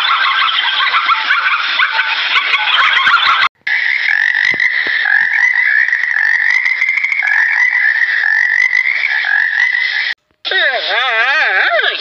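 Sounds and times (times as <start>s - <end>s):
frogs croaking: 3.7s - 10.2s.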